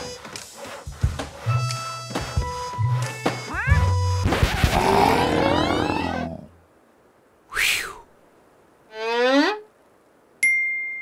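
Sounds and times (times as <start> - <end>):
cartoon monster roar: 4.7 - 6.5.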